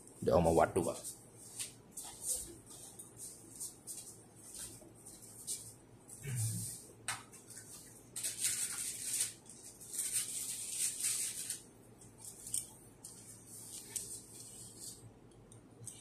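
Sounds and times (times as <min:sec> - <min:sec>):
rustling and scraping of tools: 0:00.8 - 0:15.1.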